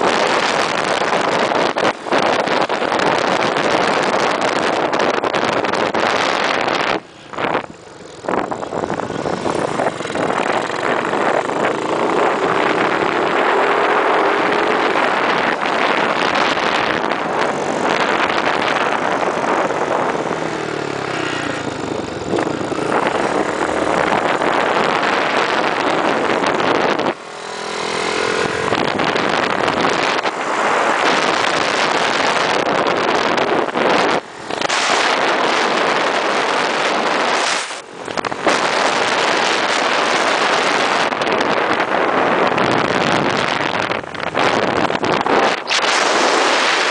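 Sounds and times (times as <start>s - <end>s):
scooter engine: 0.0s - 46.9s
wind rush on microphone: 0.0s - 46.9s.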